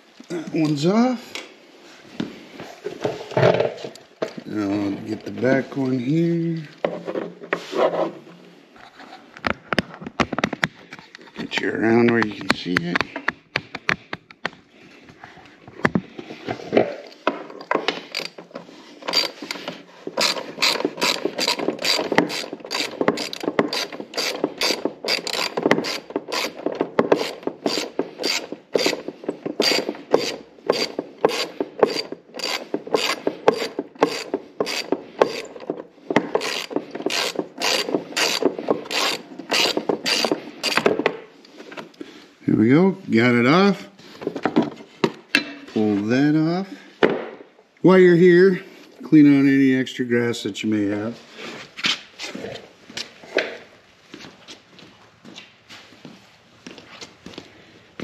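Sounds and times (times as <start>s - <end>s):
socket ratchet clicking: 20.2s - 29.0s, 36.4s - 40.8s.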